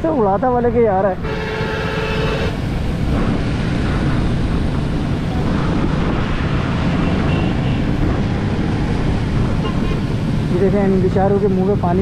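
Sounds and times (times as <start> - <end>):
vehicle road noise on wet road: 0.0 - 12.0
wind buffeting microphone: 0.6 - 11.2
steady horn-like tone: 1.2 - 2.6.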